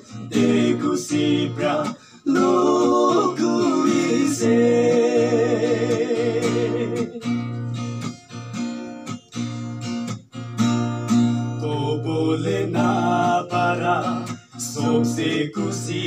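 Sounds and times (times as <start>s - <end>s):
person singing: 0.0s - 7.4s
acoustic guitar strumming: 0.0s - 16.0s.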